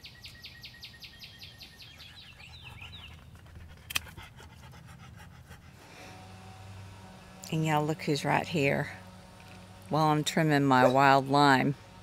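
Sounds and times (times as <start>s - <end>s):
bird chirping rapidly: 0.0s - 3.2s
sharp click: 3.9s - 4.1s.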